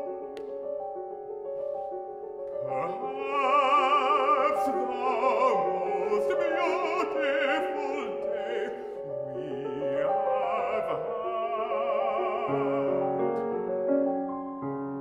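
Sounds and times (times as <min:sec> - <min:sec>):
grand piano: 0:00.0 - 0:15.0
baritone singing operatic line: 0:02.6 - 0:13.6.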